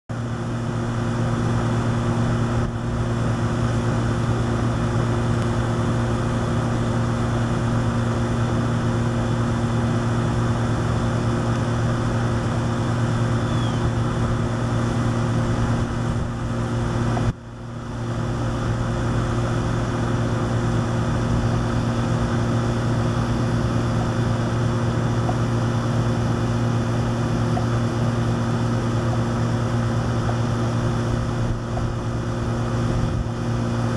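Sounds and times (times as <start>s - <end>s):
motor drone with low hum: 0.1s - 33.9s.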